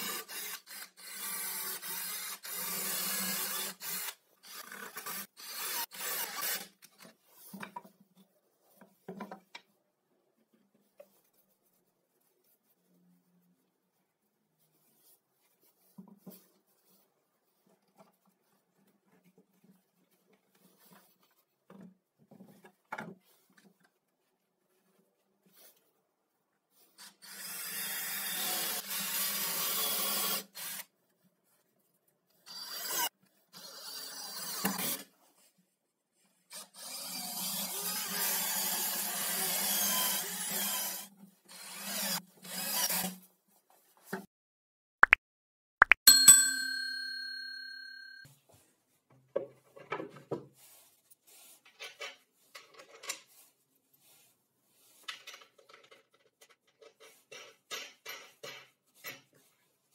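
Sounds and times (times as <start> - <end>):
cordless drill boring into wood: 0.0 - 6.7, 27.2 - 30.9, 32.5 - 35.0, 36.5 - 43.2
metallic ringing tone: 46.1 - 48.2.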